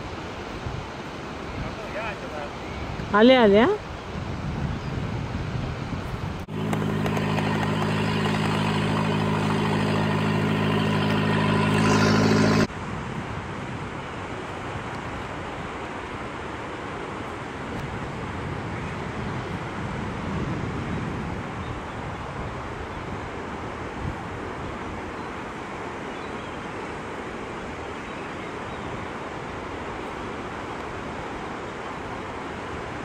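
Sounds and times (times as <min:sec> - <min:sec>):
surf: 0:00.0 - 0:04.2, 0:06.2 - 0:19.8
wind noise: 0:00.0 - 0:26.0
engine drone: 0:06.4 - 0:12.7.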